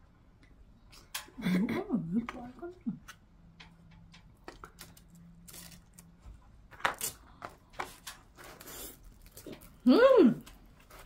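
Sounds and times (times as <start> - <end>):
eating pizza with tableware: 6.9 - 11.0.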